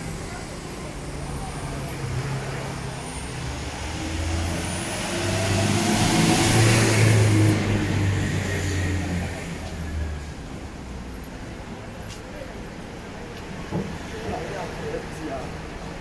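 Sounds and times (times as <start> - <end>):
truck engine passing by: 0.0 - 10.3.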